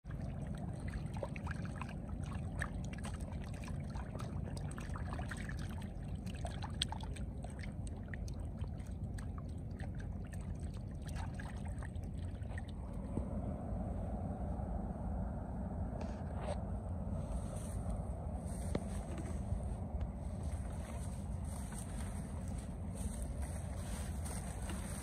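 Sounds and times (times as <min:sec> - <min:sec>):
steady low rumble: 0:00.0 - 0:25.0
fish thrashing in shallow water: 0:00.1 - 0:12.9.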